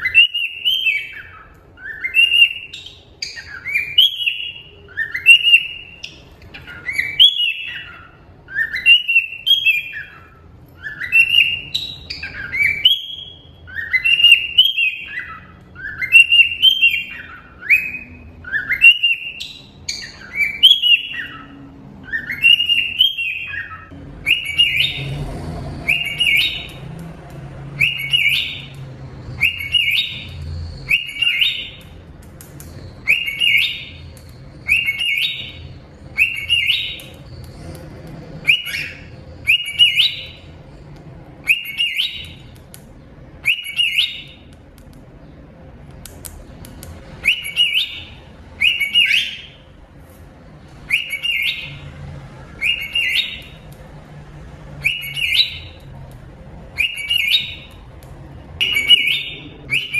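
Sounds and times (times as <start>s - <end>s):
cockatiel whistled chirps: 0.0s - 25.1s, 25.9s - 26.8s, 27.8s - 28.8s, 29.4s - 32.0s, 32.8s - 37.2s, 38.4s - 40.4s, 41.4s - 42.4s, 43.4s - 44.4s, 47.2s - 49.6s, 50.9s - 51.8s, 52.6s - 53.6s, 54.8s - 55.8s, 56.8s - 57.8s, 58.6s - 59.9s.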